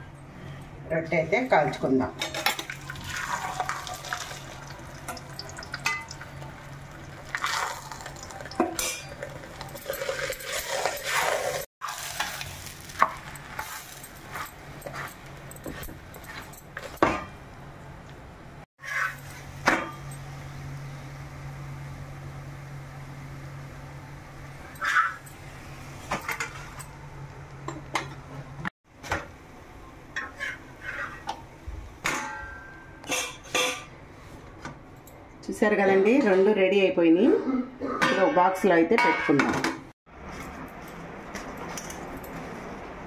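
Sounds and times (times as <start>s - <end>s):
faint sizzle on griddle: 11.8s - 14.4s
metal spatula scraping pan: 18.8s - 19.3s, 30.2s - 31.3s.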